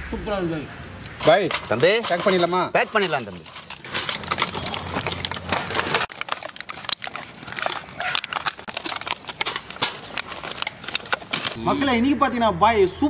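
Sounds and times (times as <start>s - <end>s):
foil crinkling: 1.2s - 11.6s.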